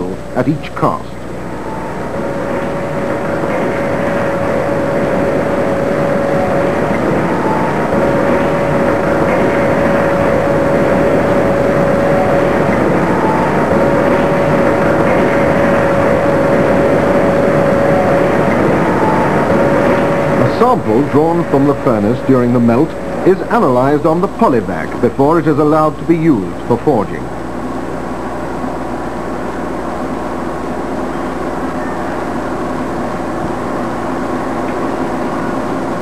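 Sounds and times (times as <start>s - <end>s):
held mid-pitched tone: 1.5s - 25.7s.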